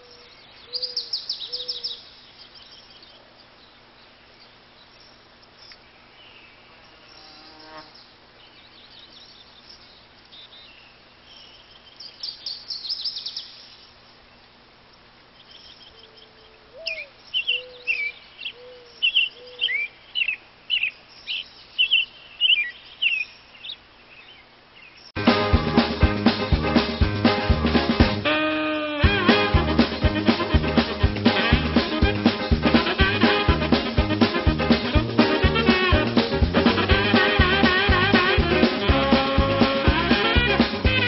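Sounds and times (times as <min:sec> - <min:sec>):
bird trill: 0:00.0 - 0:03.2, 0:04.9 - 0:13.9, 0:15.4 - 0:25.1
faint steady hum: 0:00.0 - 0:25.2
birds chirping: 0:00.0 - 0:41.0.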